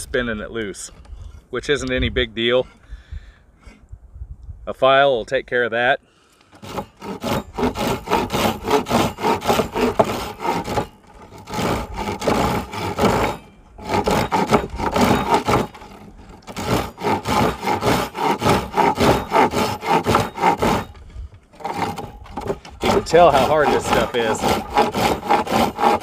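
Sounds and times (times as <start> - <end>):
hand saw rasping through wood: 6.5 - 26.0.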